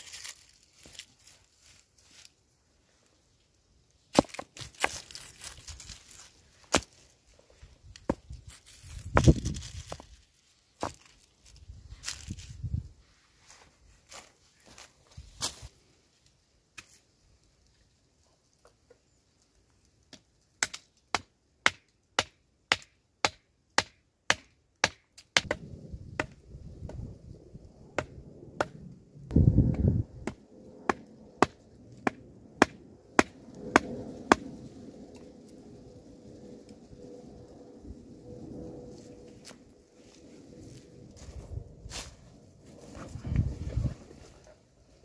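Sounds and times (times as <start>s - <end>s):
low rumbling noise: 25.5s - 31.8s.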